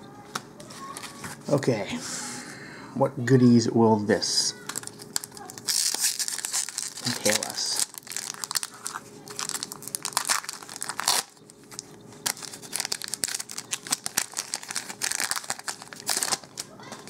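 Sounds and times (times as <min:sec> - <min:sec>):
foil wrapper tearing and crinkling: 0:04.6 - 0:17.0.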